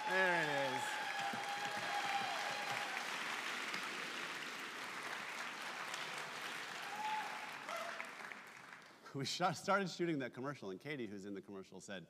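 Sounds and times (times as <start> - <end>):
audience applauding: 0.0 - 9.1.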